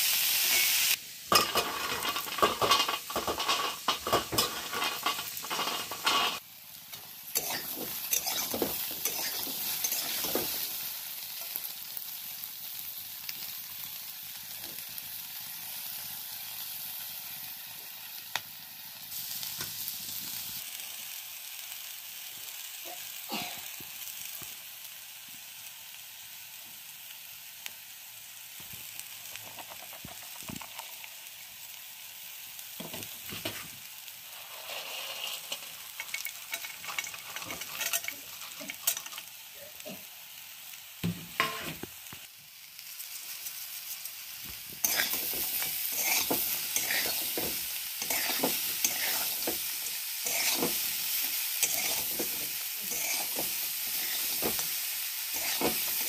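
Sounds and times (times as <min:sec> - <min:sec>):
vegetables sizzling in a wok: 0:00.0 - 0:56.0
metal spatula scraping a pan: 0:00.5 - 0:06.4, 0:07.3 - 0:10.8, 0:34.2 - 0:40.1, 0:41.4 - 0:41.8, 0:44.8 - 0:56.0.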